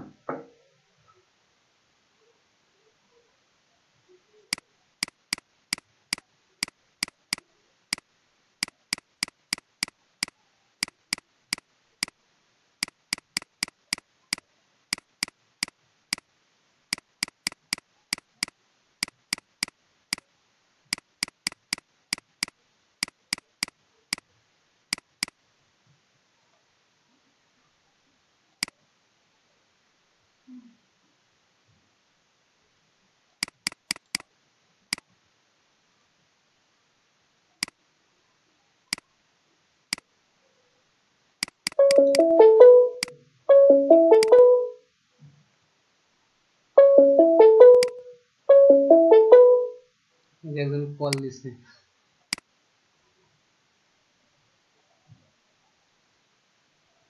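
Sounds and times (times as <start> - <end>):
computer mouse clicks: 4.5 - 12.2, 12.8 - 16.3, 16.9 - 20.3, 20.9 - 24.3, 24.9 - 25.4, 33.4 - 34.3, 41.4 - 42.2.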